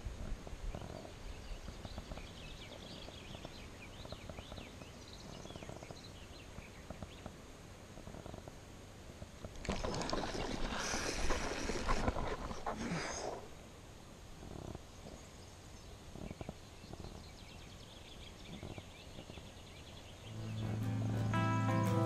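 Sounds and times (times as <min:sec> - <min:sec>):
small birds chirping: 0:00.6 - 0:08.6, 0:14.4 - 0:22.0
rustling scraping noise: 0:09.5 - 0:13.6.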